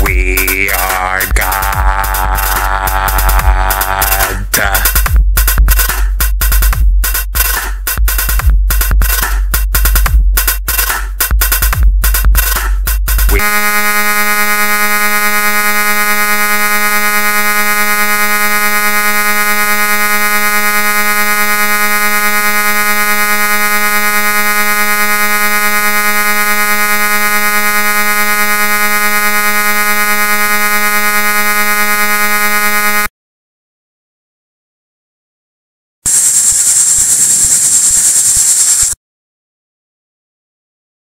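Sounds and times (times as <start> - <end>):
synthesized buzzing drone: 0.0 - 4.3, 13.3 - 33.1, 36.1 - 39.0.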